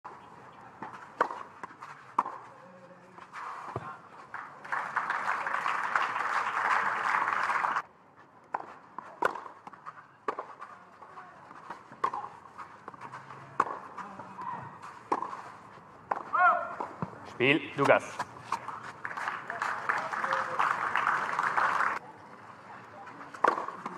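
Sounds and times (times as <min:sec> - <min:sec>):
ball and feet knocking on clay: 0:00.8 - 0:02.5, 0:08.5 - 0:17.2
tennis ball struck by rackets: 0:01.2 - 0:02.4, 0:08.5 - 0:10.5, 0:11.8 - 0:15.5, 0:16.1 - 0:17.2, 0:23.3 - 0:23.9
crowd applause: 0:04.3 - 0:07.8, 0:19.0 - 0:22.0.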